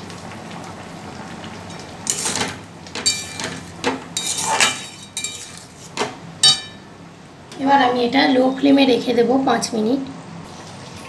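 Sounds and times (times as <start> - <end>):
metal spatula scraping a pan: 3.0 - 3.6, 4.2 - 6.6.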